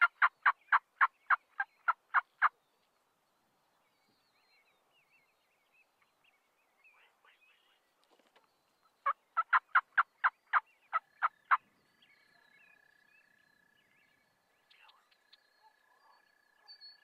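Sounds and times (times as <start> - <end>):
turkey calling sharp notes: 0.0 - 2.5, 9.0 - 11.6.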